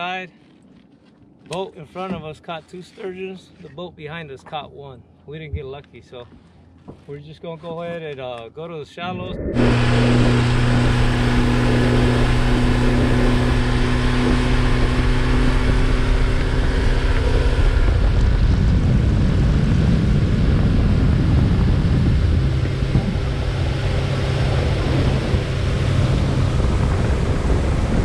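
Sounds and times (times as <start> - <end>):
rushing wind: 9.0 - 28.0
boat motor humming: 9.1 - 28.0.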